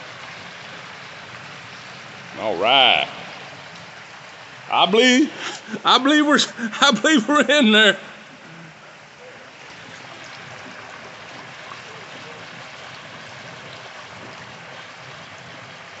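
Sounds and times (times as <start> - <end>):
hot oil bubbling and sizzling: 0.0 - 4.7, 8.3 - 16.0.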